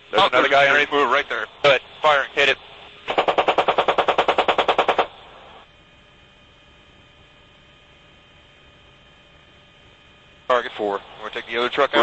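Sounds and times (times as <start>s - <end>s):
faint steady hum and hiss: 0.0s - 12.0s
rapid gunfire bursts: 3.1s - 5.2s.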